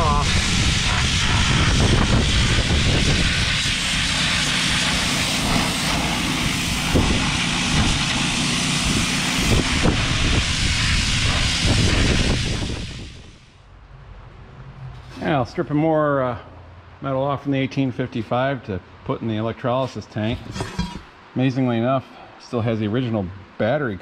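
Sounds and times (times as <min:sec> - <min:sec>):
low motor drone: 0:00.0 - 0:12.3
pressure washer jet hissing on metal: 0:00.0 - 0:13.4.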